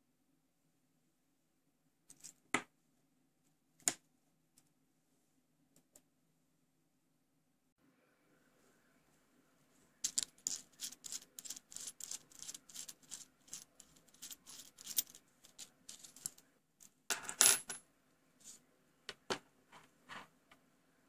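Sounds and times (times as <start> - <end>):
metal nut threads clicking: 10.0 - 16.4.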